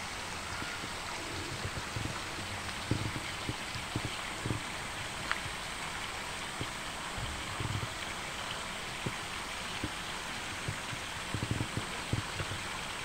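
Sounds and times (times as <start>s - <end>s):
running water rushing: 0.0s - 13.0s
soft low thumps: 10.6s - 12.6s.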